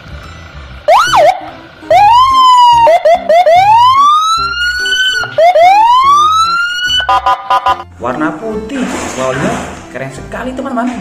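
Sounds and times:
police siren wailing: 0.9 - 7.8.

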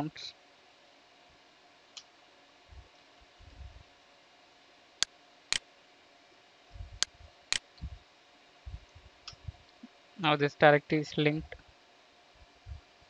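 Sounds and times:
soft low thumps: 2.7 - 3.8, 6.7 - 8.0, 8.6 - 9.6, 12.4 - 12.9.

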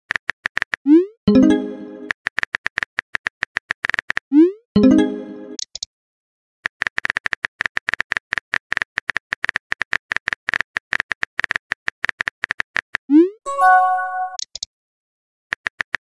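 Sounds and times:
chime: 13.5 - 14.4.

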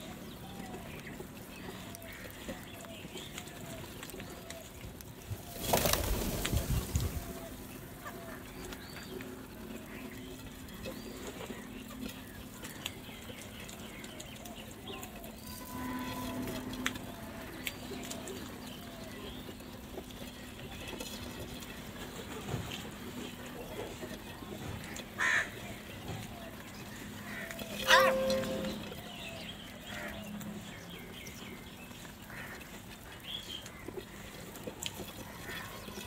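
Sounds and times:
crow caw: 25.2 - 25.6, 32.3 - 32.7.

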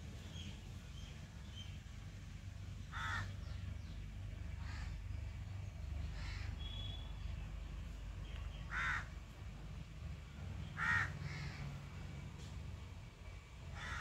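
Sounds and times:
low steady rumble: 0.0 - 14.0
crows cawing: 2.9 - 3.4, 4.6 - 5.0, 6.1 - 6.5, 8.7 - 9.1, 10.8 - 11.8, 13.7 - 14.0.

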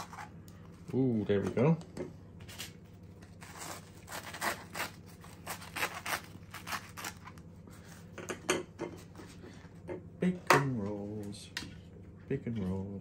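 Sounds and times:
knife sawing through bread crust: 3.4 - 7.2.

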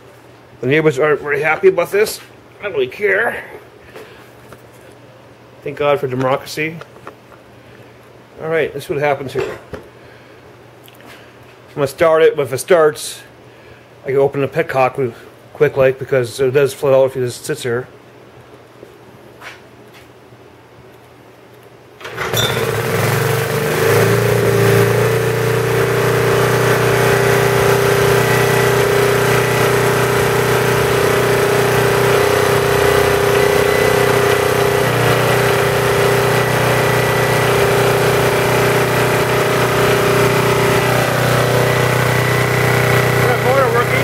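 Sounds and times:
generator engine running: 22.0 - 44.0.

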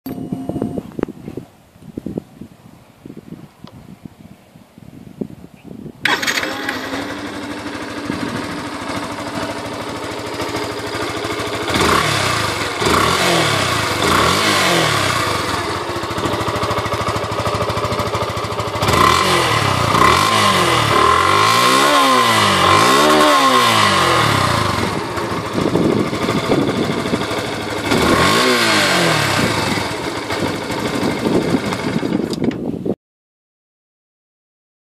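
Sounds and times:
motorcycle engine revving: 6.0 - 32.5
motorcycle engine starting: 6.0 - 33.0.

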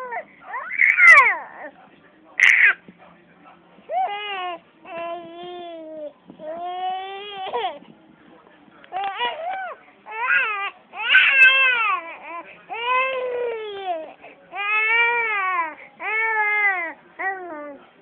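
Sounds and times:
baby screaming and crying: 0.5 - 1.7, 2.4 - 2.8.

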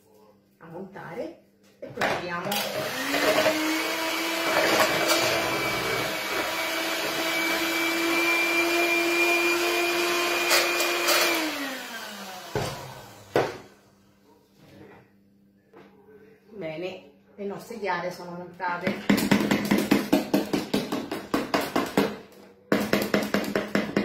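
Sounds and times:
electric hand mixer whirring: 2.5 - 13.7.

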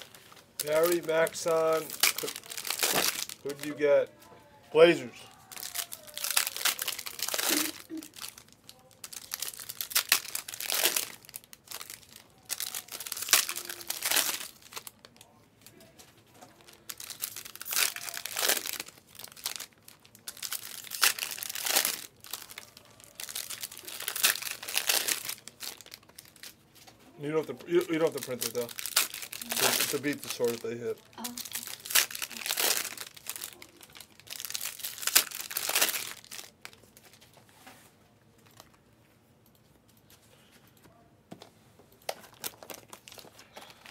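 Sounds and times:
plastic wrappers crinkling and tearing: 0.0 - 4.1, 4.8 - 37.5, 42.0 - 43.9.

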